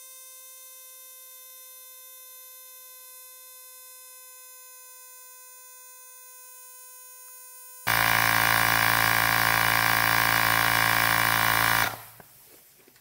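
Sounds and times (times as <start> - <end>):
tyre inflator compressor running: 7.9 - 12.3.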